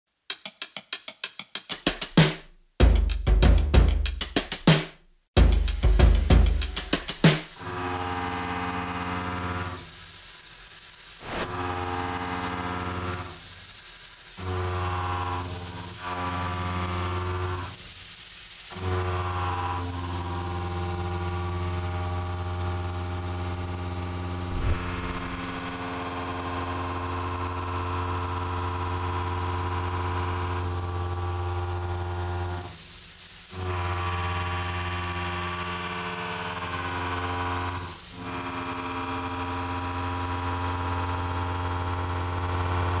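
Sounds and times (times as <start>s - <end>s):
synthesizer chords: 5.4s - 7.6s
steady high hiss: 5.4s - 7.8s, 24.3s - 26.4s.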